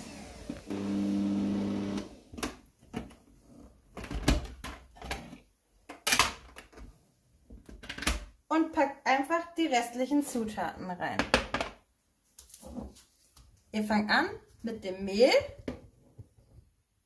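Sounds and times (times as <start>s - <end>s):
stand mixer motor humming: 0.0s - 2.2s.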